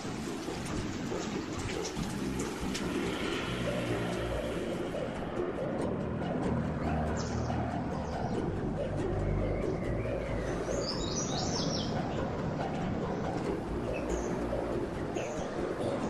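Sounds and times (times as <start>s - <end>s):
high bird chirps: 9.2s - 12.0s.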